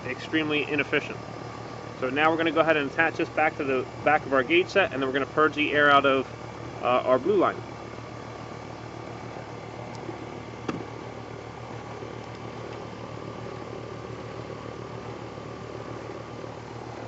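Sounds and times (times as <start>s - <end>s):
air conditioner humming: 0.0s - 17.0s.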